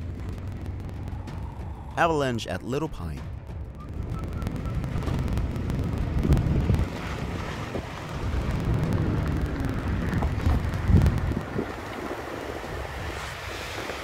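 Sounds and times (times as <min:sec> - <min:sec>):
avalanche rumbling: 0:00.0 - 0:14.0
wind buffeting microphone: 0:03.5 - 0:14.0.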